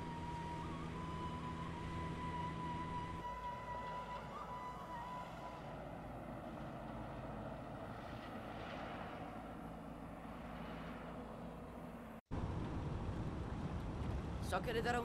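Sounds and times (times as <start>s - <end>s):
low engine hum: 0.0s - 15.0s
road and wind noise: 0.0s - 15.0s.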